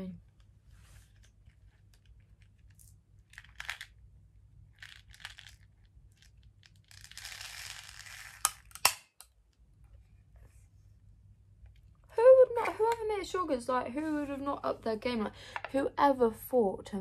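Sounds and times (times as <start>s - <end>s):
plastic pot crinkling: 4.7s - 9.0s.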